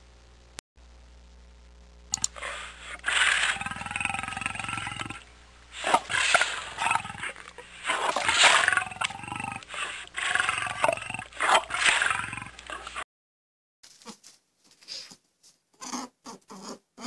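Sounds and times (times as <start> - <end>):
tiger snarling and growling: 2.2 - 13.0.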